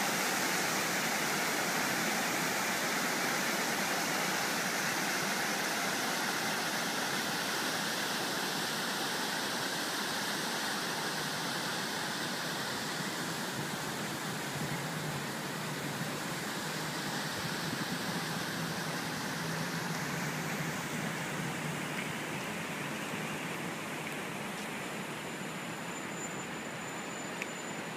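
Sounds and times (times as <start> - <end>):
fountain water splashing: 0.0 - 27.9.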